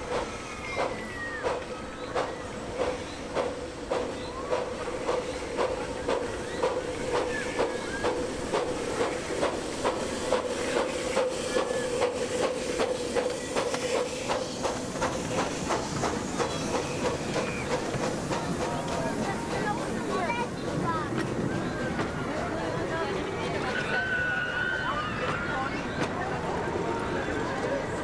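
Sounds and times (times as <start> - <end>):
steam hissing: 0.0 - 21.0
steam locomotive exhaust beating: 0.0 - 22.5.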